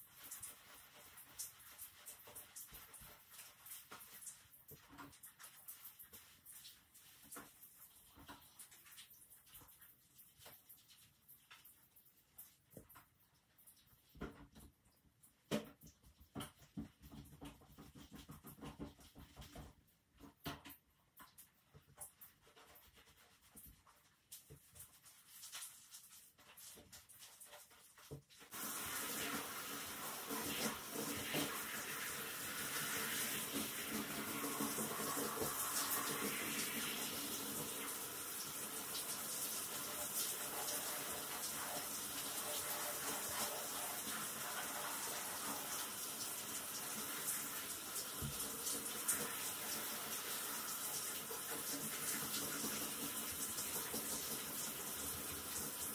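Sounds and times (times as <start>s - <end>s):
shower head spraying water: 28.4s - 55.9s.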